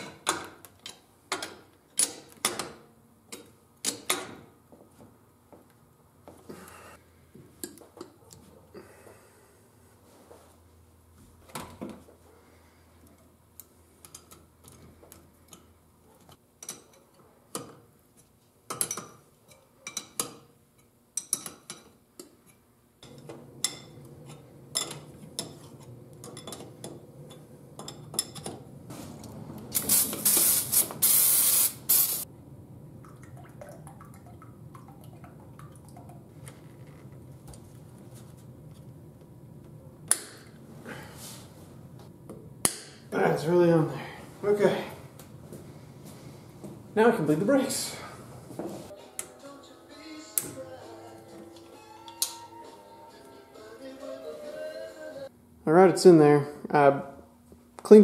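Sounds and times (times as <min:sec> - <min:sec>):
spray hissing: 0:29.7 - 0:32.3.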